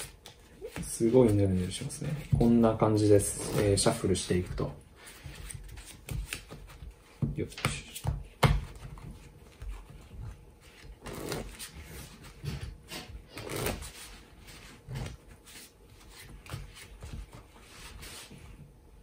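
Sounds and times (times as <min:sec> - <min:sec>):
playing cards riffling: 0:10.7 - 0:12.3, 0:13.0 - 0:14.2.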